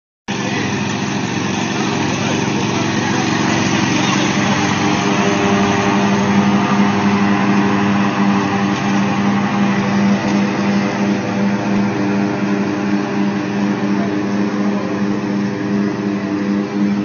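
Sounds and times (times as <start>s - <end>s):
lawn tractor engine running: 0.3s - 17.0s.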